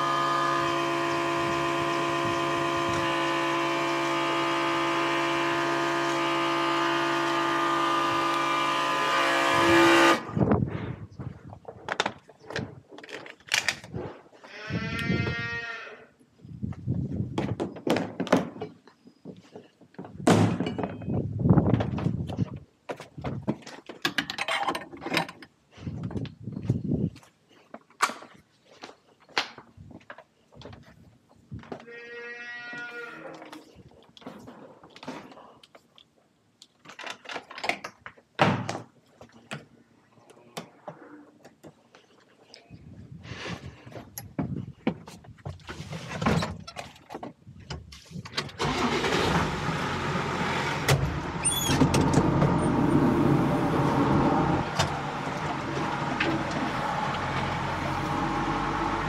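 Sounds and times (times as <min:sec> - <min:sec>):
farm animal bleating: 0:14.4 - 0:16.1, 0:31.8 - 0:33.6.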